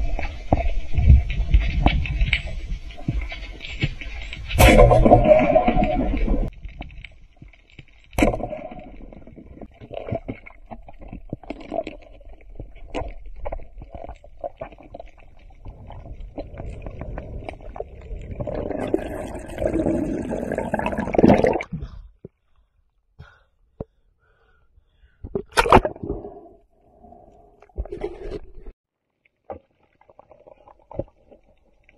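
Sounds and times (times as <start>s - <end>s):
sharp underwater clicks and crackles: 0.0s - 20.3s
underwater rumbling and gurgling: 0.0s - 21.6s.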